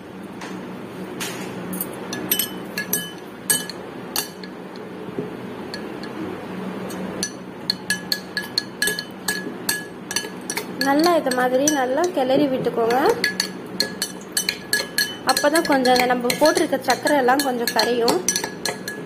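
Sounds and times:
spoon clinking in glass: 0:01.8 - 0:04.5, 0:07.2 - 0:11.8, 0:12.9 - 0:19.0.

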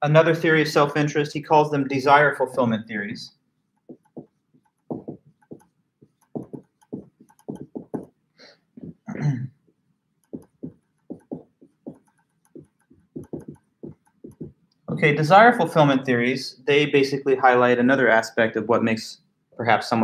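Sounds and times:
marker writing on a whiteboard: 0:03.9 - 0:08.1, 0:10.2 - 0:14.6.

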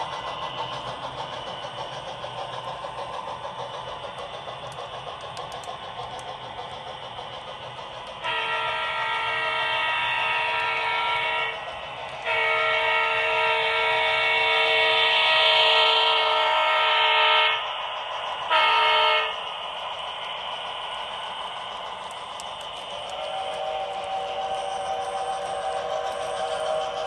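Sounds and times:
multi-tone locomotive air horn: 0:08.2 - 0:11.6, 0:12.2 - 0:17.7, 0:18.5 - 0:19.4.

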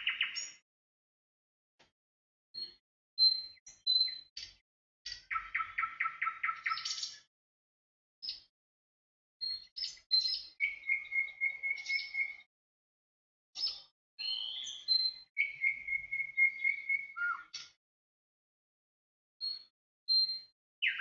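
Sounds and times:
bird trills: 0:00.0 - 0:00.6, 0:05.1 - 0:07.2, 0:09.8 - 0:12.4, 0:13.6 - 0:17.8, 0:20.3 - 0:21.0
songbirds chirping and singing: 0:00.0 - 0:00.6, 0:02.6 - 0:07.3, 0:09.4 - 0:12.5, 0:13.6 - 0:17.8, 0:19.4 - 0:21.0
gliding bird whistles: 0:09.5 - 0:12.5, 0:13.7 - 0:17.6.

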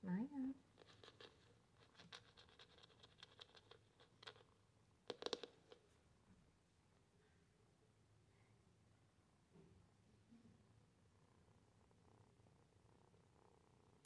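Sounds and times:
kitten claws scratching on floor: 0:00.7 - 0:05.9.

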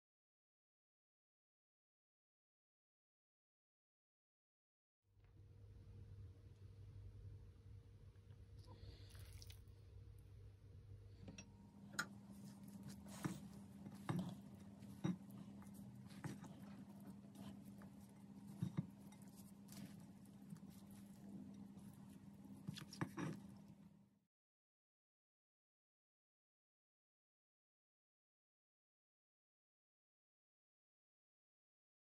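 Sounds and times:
wet mixing of salad: 0:08.8 - 0:09.7, 0:11.8 - 0:23.9.

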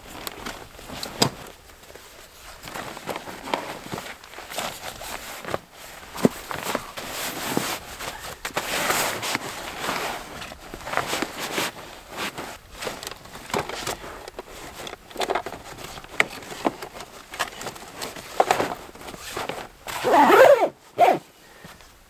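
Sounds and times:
camping gear rustling and knocking: 0:00.0 - 0:22.0
wavering squeak: 0:20.0 - 0:21.2.

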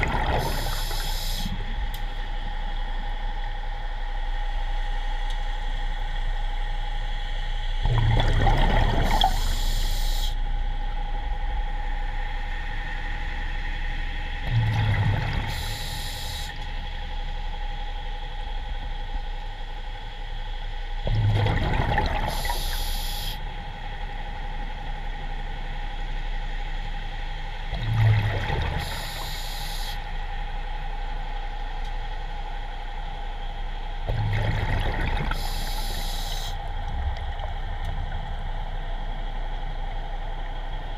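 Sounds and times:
steady hum: 0:00.0 - 0:40.9
diver breathing through regulator: 0:35.4 - 0:36.6.

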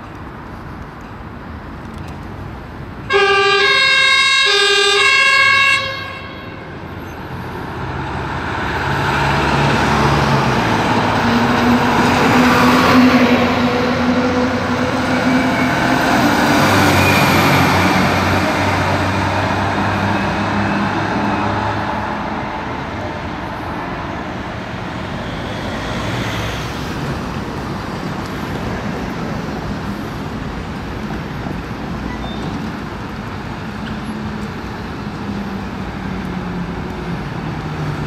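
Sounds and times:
fire truck diesel engines rumbling: 0:00.3 - 0:38.0
two-tone siren: 0:03.1 - 0:06.8.

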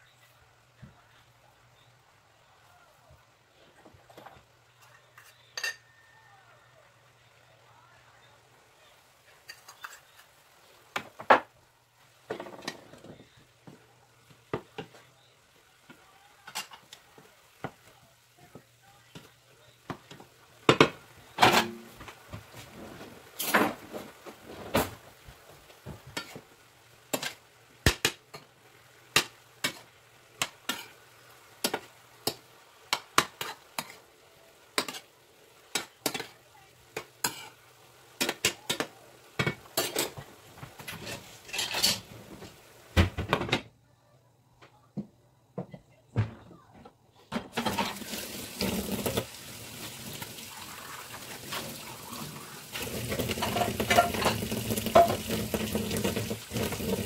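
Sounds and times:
faint sizzle: 0:00.0 - 0:57.0
utensils scraping a frying pan: 0:09.3 - 0:10.4, 0:26.2 - 0:26.5, 0:27.1 - 0:27.4, 0:29.2 - 0:31.0, 0:31.6 - 0:34.0, 0:34.8 - 0:35.1, 0:37.0 - 0:38.8, 0:39.4 - 0:42.6, 0:47.5 - 0:49.3, 0:50.5 - 0:57.0.

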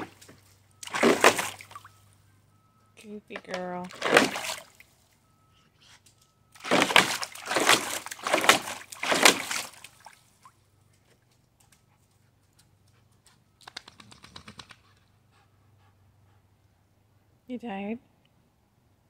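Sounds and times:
dog splashing water: 0:00.0 - 0:01.9, 0:03.6 - 0:04.9, 0:06.6 - 0:10.5.

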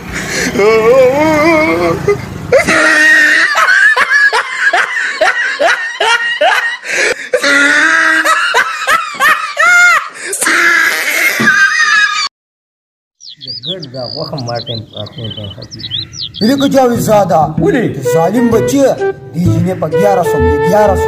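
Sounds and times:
person laughing loudly: 0:00.6 - 0:12.3.

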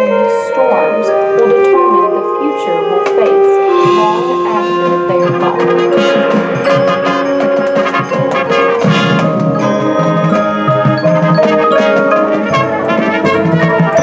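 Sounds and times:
held brass chords: 0:00.0 - 0:14.0
marching band percussion: 0:03.1 - 0:14.0.

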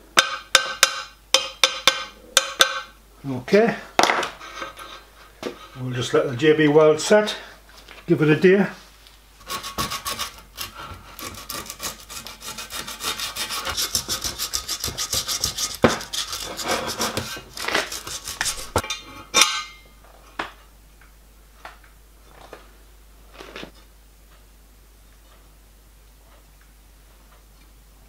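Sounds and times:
hand rubbing on steel: 0:11.4 - 0:18.8.

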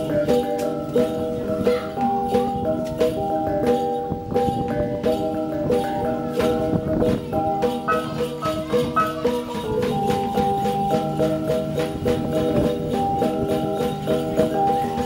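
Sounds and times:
gong ensemble playing: 0:00.0 - 0:15.0.

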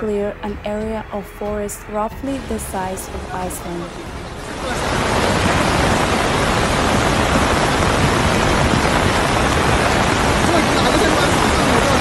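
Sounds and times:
floodwater rushing: 0:02.5 - 0:12.0.

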